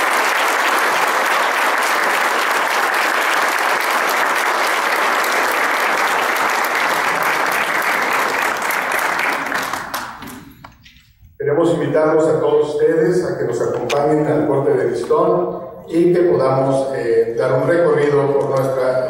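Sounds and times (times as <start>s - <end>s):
audience applauding: 0.0s - 10.6s.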